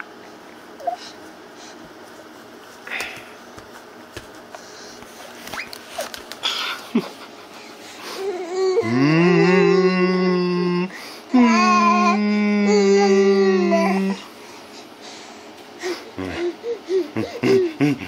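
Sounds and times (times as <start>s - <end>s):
person holding vocal notes: 8.8s - 12.8s.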